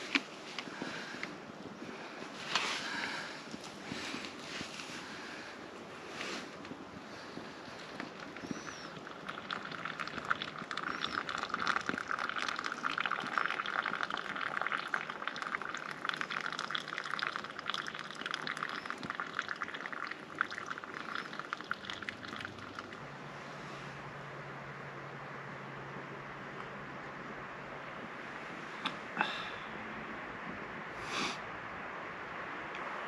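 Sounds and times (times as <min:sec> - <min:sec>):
hot water trickling into cup: 0:07.1 - 0:23.1.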